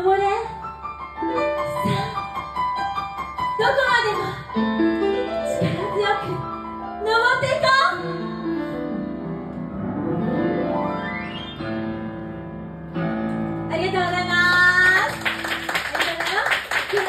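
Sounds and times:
people clapping: 0:14.0 - 0:17.0.

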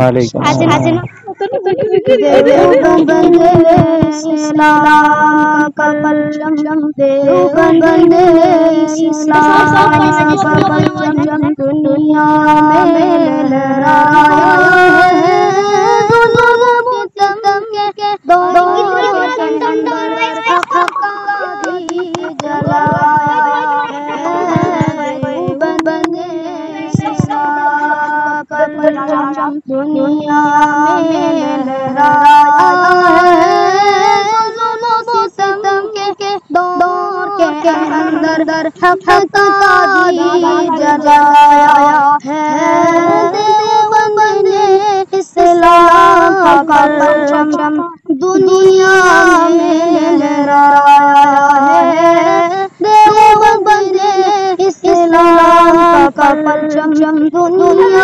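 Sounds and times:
boy singing unaccompanied: 0:00.0 - 0:58.0.

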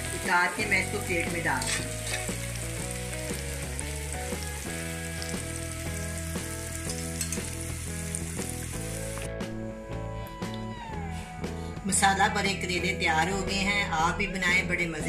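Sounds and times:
food sizzling in oil: 0:00.0 - 0:09.3
background music: 0:00.0 - 0:15.0.

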